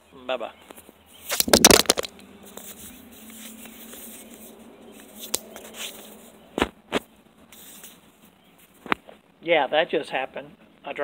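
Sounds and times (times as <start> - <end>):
handling and scraping noises: 0.6 - 9.2.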